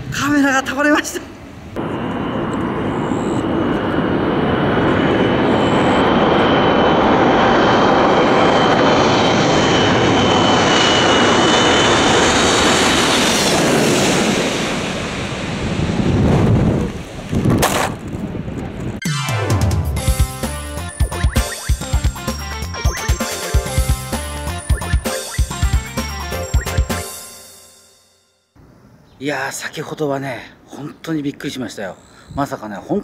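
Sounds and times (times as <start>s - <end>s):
airliner engine roar and whine: 1.2s - 19.0s.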